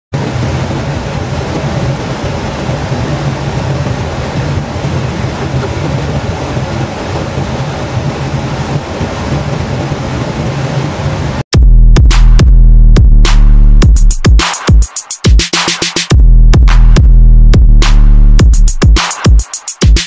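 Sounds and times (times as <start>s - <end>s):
low hum: 11.6s - 14.2s, 16.1s - 18.8s.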